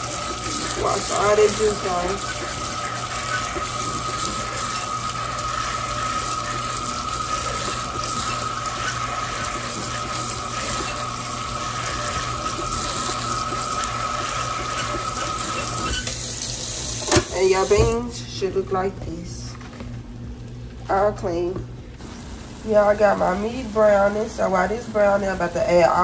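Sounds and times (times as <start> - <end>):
steady high whine: 0.0 - 17.1
faucet water pouring: 0.0 - 17.7.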